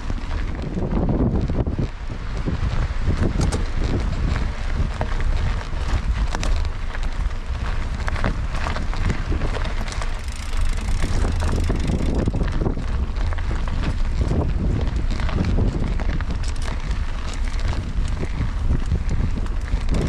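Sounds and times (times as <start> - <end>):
small clicks and rattles: 0.0 - 20.0
wind buffeting microphone: 0.0 - 20.0.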